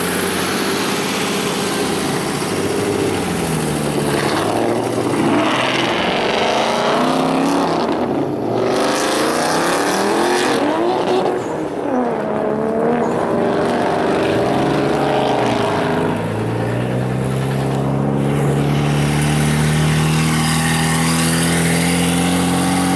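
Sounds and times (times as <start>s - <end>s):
car engines accelerating hard: 0.0s - 22.9s.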